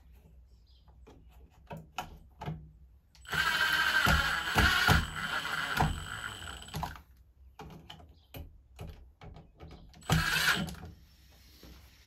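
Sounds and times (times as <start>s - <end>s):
cordless driver spinning: 3.2s - 7.0s, 10.0s - 10.8s.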